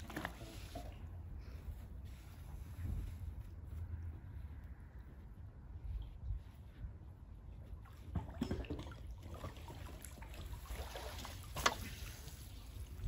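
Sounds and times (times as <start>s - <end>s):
water trickling and splashing: 0.0s - 3.5s, 7.4s - 13.0s
steady low rumble: 0.8s - 8.1s.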